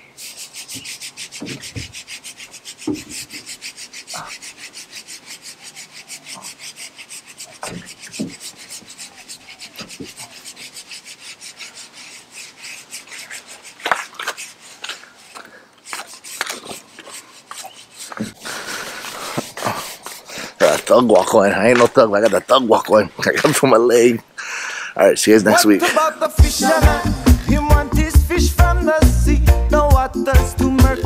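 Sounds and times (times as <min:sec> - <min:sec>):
fast rasping pulse: 0:00.2 - 0:21.3, 0:26.4 - 0:28.4.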